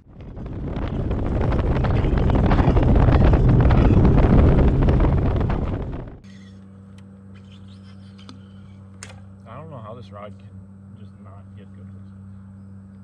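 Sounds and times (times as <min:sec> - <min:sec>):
wind rushing over microphone: 0:00.0 - 0:06.2
boat running noise: 0:00.0 - 0:06.3.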